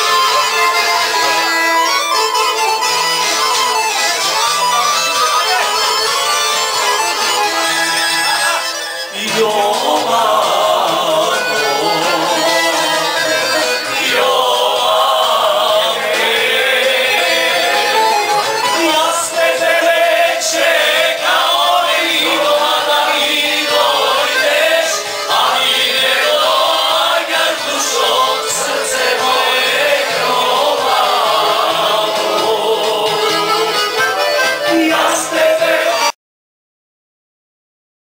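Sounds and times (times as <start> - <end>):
group of people singing along: 8.5 - 33.9, 34.6 - 36.2
loud dance music: 9.2 - 17.5, 34.7 - 36.1.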